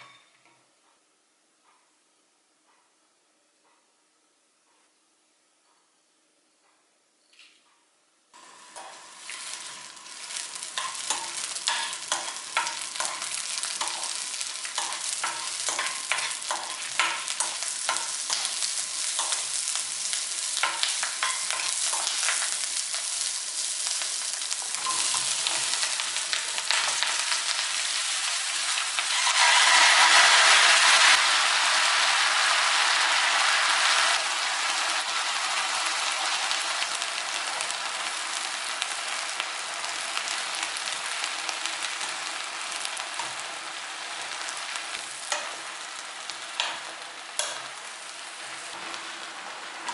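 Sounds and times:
peppers sizzling in a wok: 8.4 - 49.9
wooden spatula scraping a pan: 29.0 - 31.2.

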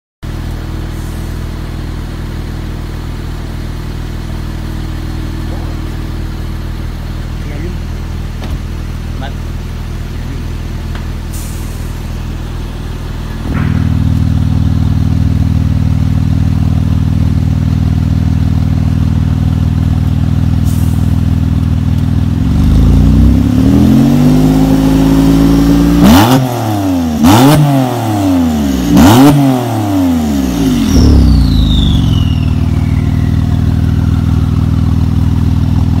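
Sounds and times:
car engine idling: 0.2 - 24.6, 30.1 - 36.0
engine revving with blips: 22.4 - 34.9
turbo whistle: 30.8 - 34.9.

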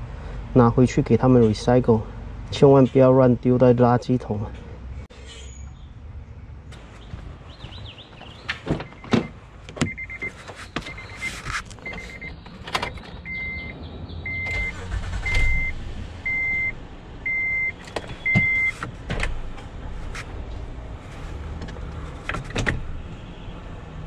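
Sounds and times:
sharp knocks and clunks: 7.0 - 11.2
car warning chime beeping: 8.8 - 12.4, 13.2 - 18.8.

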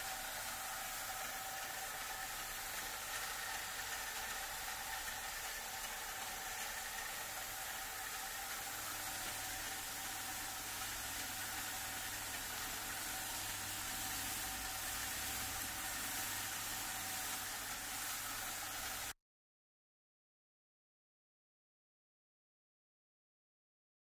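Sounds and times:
motor hum with constant tones: 0.0 - 19.1.

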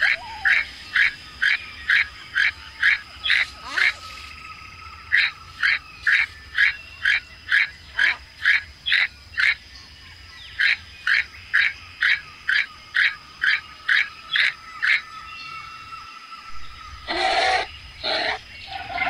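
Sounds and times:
toucan calling: 0.0 - 4.4, 16.6 - 19.0.

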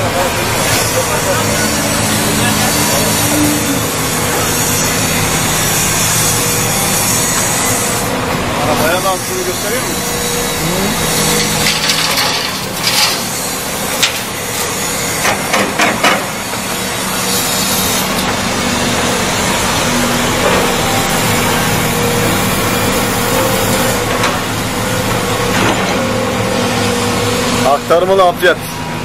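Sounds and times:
diesel engines running: 0.0 - 29.0
excavator bucket scraping and knocking: 11.2 - 14.3.

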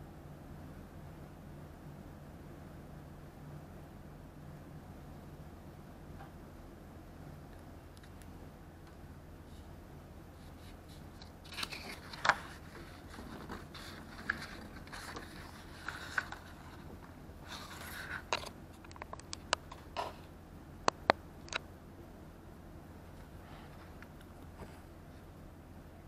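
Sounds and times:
paper rustling and scraping: 10.4 - 18.5.

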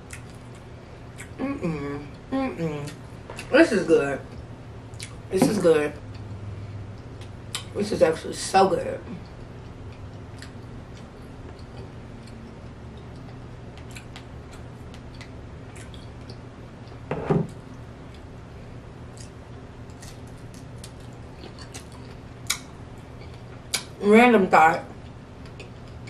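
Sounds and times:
chewing and smacking: 0.0 - 1.4, 4.9 - 5.2, 9.2 - 17.0, 19.1 - 24.0, 25.0 - 26.0
steady low hum: 0.0 - 26.0
woman's voice: 1.4 - 4.4, 5.3 - 6.0, 7.8 - 9.2, 24.0 - 25.0.

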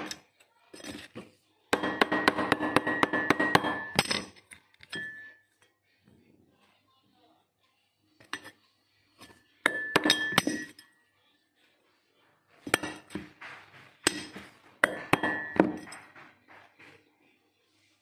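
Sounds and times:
metal tapping on metal: 12.7 - 16.9.

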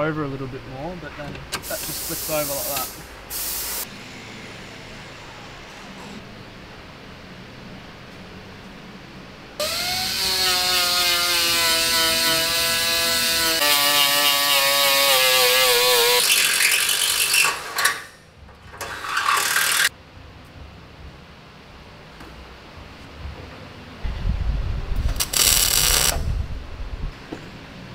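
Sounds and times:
angle grinder grinding metal: 9.6 - 18.1, 18.8 - 19.9, 25.2 - 26.2.

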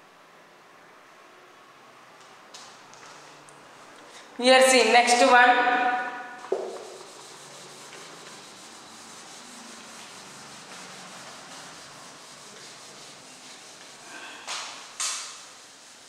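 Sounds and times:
squeaky marker strokes: 6.5 - 14.0
rubbing on writing board: 6.5 - 16.0.

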